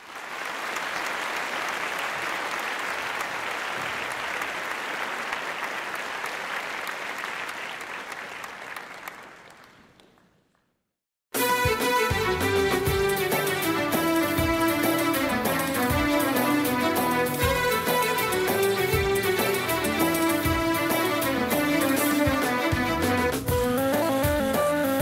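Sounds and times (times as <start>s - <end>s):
crowd applause: 0.0s - 10.4s, 12.2s - 23.6s
music: 11.3s - 25.0s.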